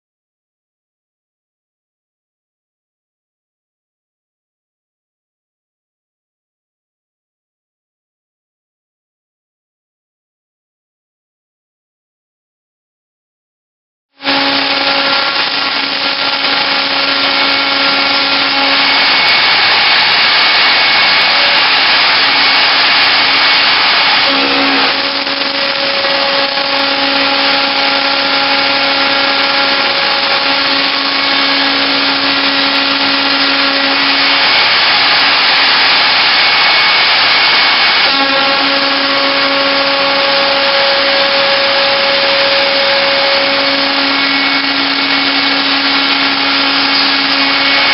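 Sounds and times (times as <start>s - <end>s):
harsh metal cutting noise: 14.2s - 47.9s
router spindle whine: 14.2s - 47.9s.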